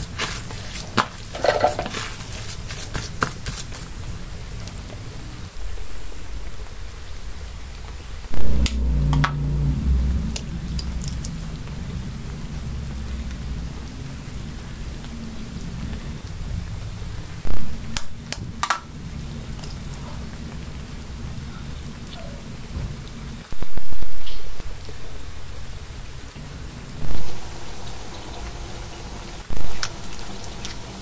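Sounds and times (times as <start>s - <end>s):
hand kneading mashed potato: 0.0s - 5.0s.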